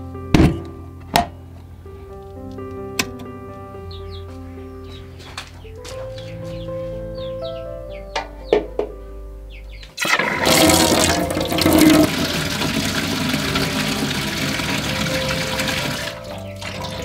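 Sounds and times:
water gushing into metal basin: 10.0 - 17.0.

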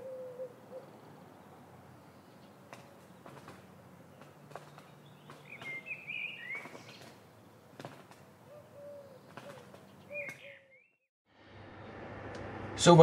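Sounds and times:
dove cooing: 0.0 - 1.0, 8.4 - 10.8
small bird chirping: 4.1 - 7.2, 8.5 - 11.0.

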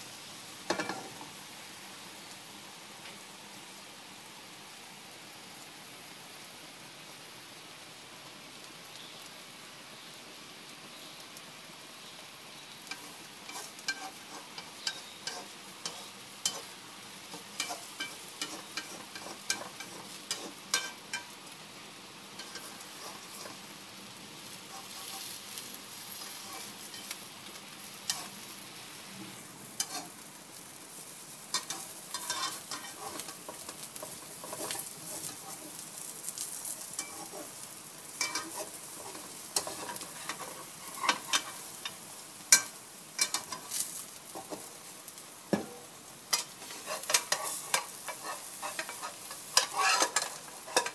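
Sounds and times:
egg sizzling in oil: 0.0 - 50.9
spatula clicking and scraping pan: 0.7 - 1.2, 12.8 - 21.4, 22.4 - 23.6, 24.7 - 25.4, 26.1 - 27.2, 28.0 - 28.4, 29.8 - 30.3, 31.5 - 44.8, 45.5 - 50.9.

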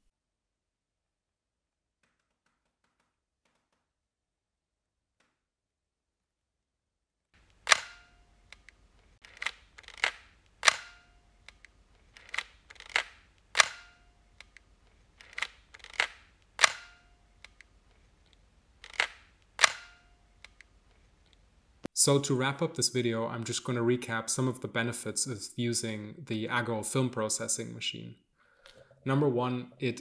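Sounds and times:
camera shutter clicks: 7.6 - 11.6, 12.2 - 14.5, 15.2 - 17.6, 18.8 - 20.6.

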